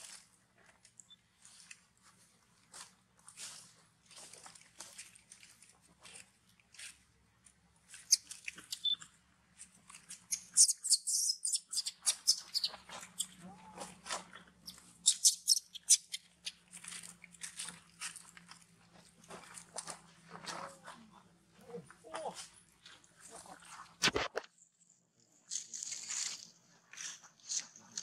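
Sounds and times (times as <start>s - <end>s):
dry leaves crunching: 25.5s - 28.0s.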